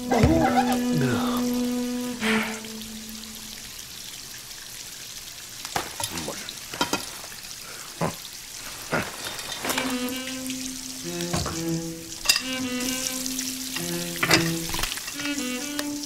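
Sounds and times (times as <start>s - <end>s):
held music note: 0.0s - 3.6s
water spraying hiss: 0.0s - 16.0s.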